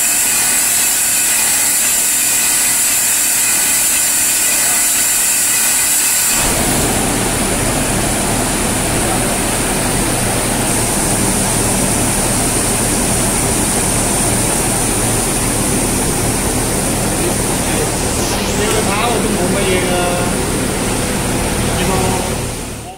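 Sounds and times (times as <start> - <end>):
polishing lathe running: 0.0 - 22.9
low hum: 6.4 - 22.9.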